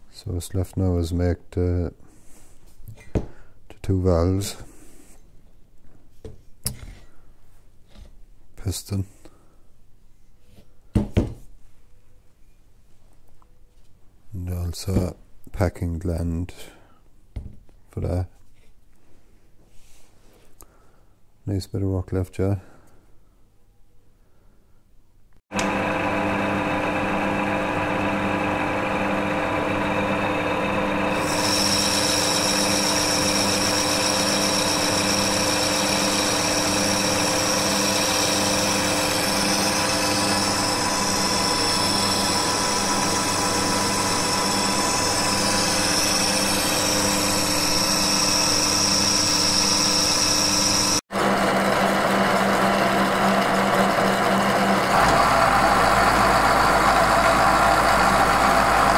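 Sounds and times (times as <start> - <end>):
metal lathe humming: 25.5 - 58.9
high machine whine: 25.6 - 58.9
milling machine cutting metal: 25.6 - 58.9.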